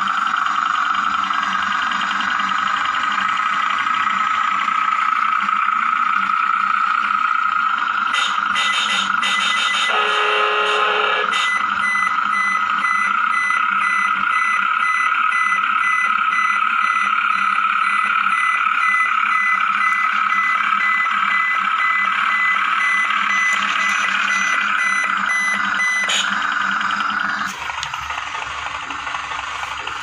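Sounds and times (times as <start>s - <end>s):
drive motor and gears whining: 0.0s - 30.0s
reversing beeper: 8.0s - 27.5s.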